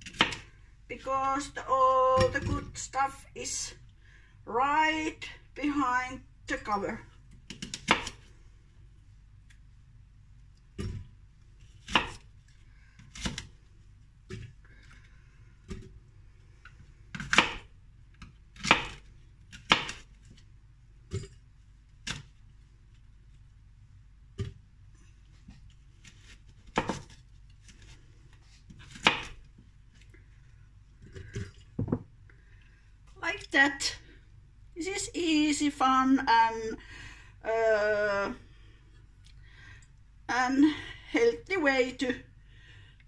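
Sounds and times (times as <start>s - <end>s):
knife cutting apple on board: 11.8s - 12.3s, 17.2s - 20.0s.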